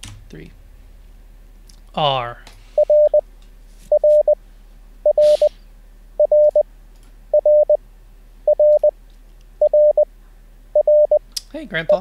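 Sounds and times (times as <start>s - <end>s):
morse code beeps: 2.8s - 3.2s, 3.9s - 4.4s, 5.1s - 5.6s, 6.2s - 6.6s, 7.4s - 7.8s, 8.5s - 8.9s, 9.6s - 10.1s, 10.8s - 11.2s.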